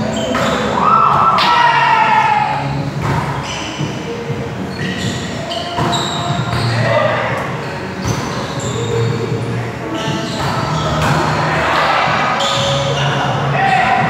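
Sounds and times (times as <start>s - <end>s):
volleyball hits: 2.4s - 3.4s, 10.4s - 12.9s
players calling out: 4.6s - 14.0s.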